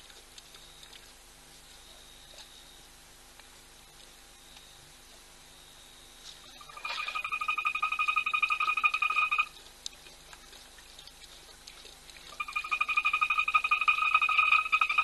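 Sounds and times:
frog trilling: 6.5s - 9.5s, 12.4s - 15.0s.

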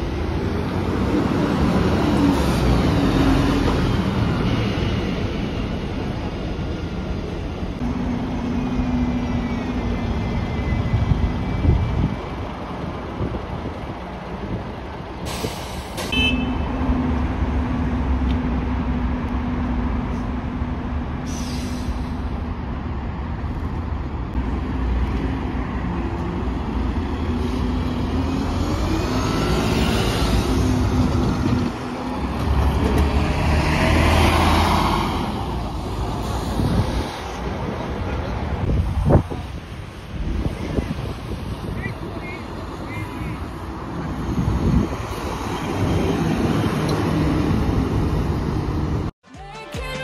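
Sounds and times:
bus engines running: 0.0s - 49.1s
air brakes hissing: 15.2s - 16.2s, 21.2s - 22.4s.

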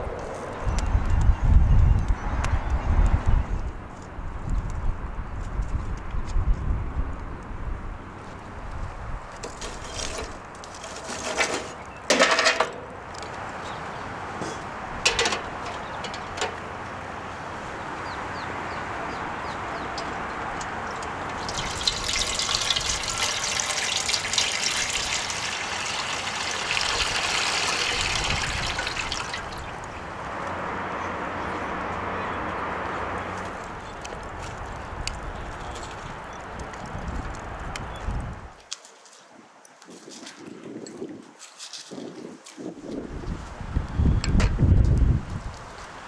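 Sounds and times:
water pouring into metal pot: 21.3s - 29.8s.

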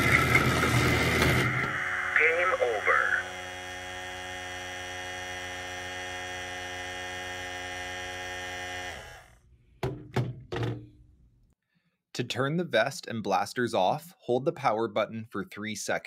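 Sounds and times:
vibration motor buzzing: 0.0s - 9.5s.

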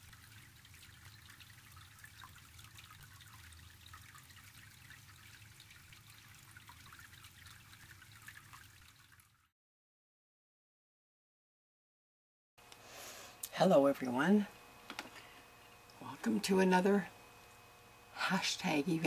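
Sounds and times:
faint trickling water: 0.0s - 9.5s.

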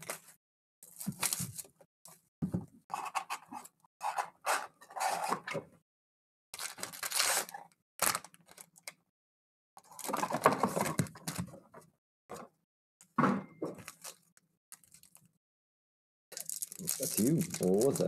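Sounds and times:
cardboard box and foil packs handling: 0.0s - 1.8s, 6.6s - 8.9s, 9.8s - 11.4s, 13.8s - 15.3s, 16.4s - 18.0s.

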